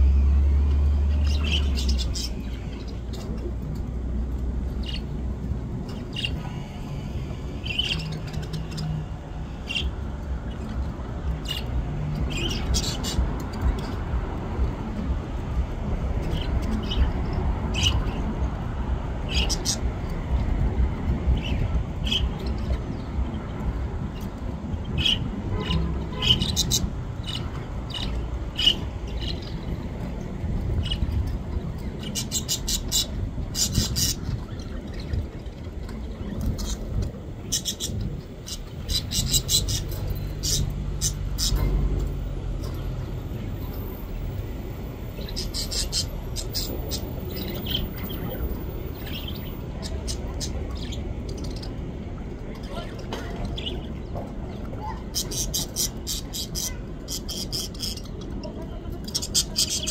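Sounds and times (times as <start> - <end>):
budgerigars chirping: 5.9 - 6.7, 12.3 - 14.0, 19.3 - 19.8, 25.0 - 29.6, 32.0 - 35.2, 37.4 - 41.8, 45.2 - 51.8.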